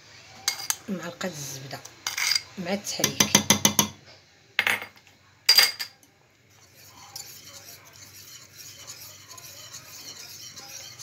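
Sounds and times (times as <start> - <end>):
whisk scraping metal pan: 6.5 - 11.0.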